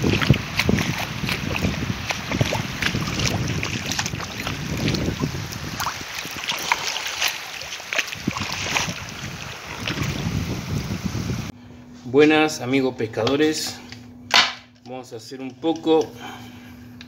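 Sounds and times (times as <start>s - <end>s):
small waves lapping: 0.0s - 11.1s
wind buffeting microphone: 0.0s - 11.5s.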